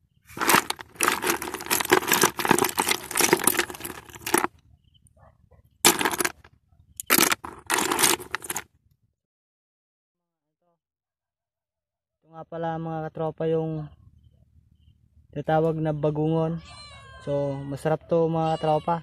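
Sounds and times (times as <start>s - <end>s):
snail shells clattering in bucket: 0.3s - 4.5s, 5.9s - 8.6s.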